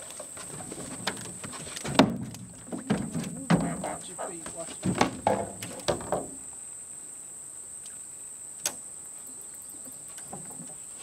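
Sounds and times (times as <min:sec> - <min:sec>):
insects droning: 0:00.0 - 0:11.0
loud knocks: 0:01.8 - 0:06.4.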